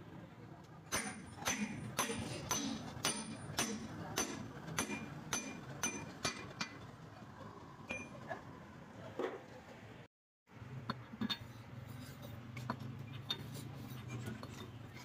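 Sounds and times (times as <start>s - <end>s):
hammer striking metal: 0.9s - 6.8s.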